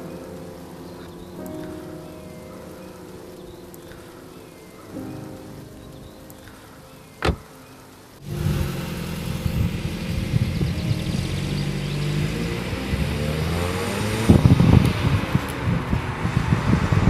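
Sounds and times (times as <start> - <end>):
car engine running and driving off: 8.2 - 17.0.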